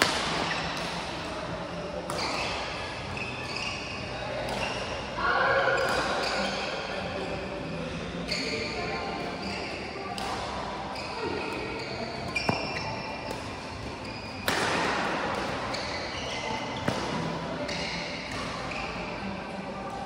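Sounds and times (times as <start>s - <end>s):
rackets hitting shuttlecock: 0.0s - 1.1s, 2.0s - 2.7s, 4.4s - 5.0s, 5.8s - 6.7s, 10.1s - 10.6s, 12.3s - 19.0s
shoes squeaking on court floor: 2.0s - 19.9s.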